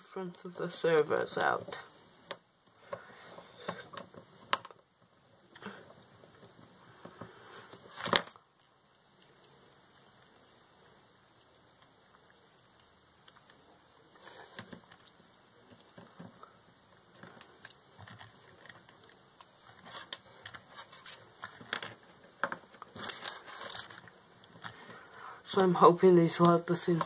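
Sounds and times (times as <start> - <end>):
hands handling small plastic parts: 11.3 - 25.0.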